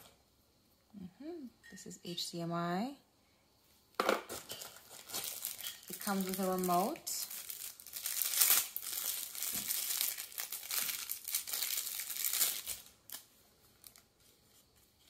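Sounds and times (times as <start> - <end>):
plastic wrap crinkling: 4.2 - 14.3.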